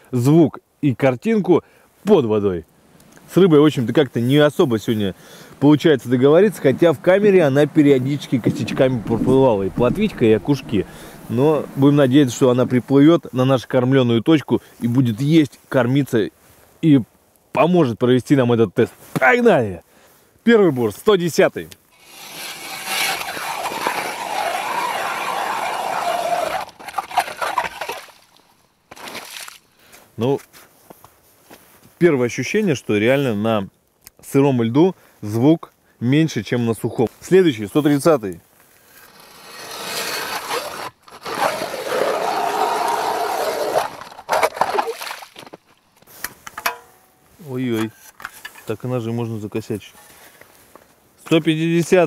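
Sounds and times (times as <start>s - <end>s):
ice auger grinding into ice: 8.1s - 11.9s, 22.0s - 29.6s, 38.8s - 45.6s.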